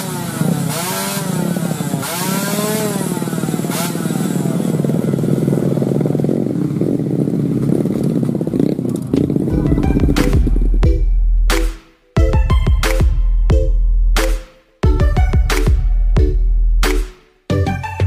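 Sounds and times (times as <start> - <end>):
two-stroke motorcycle engines revving: 0.0 - 10.8.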